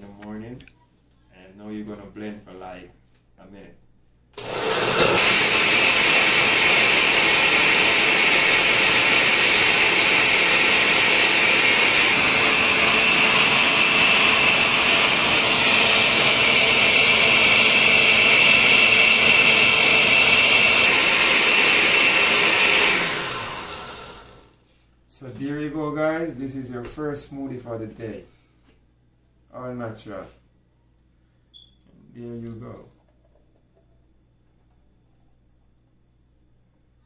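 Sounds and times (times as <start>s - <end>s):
blender running at high speed: 4.4s - 24.5s.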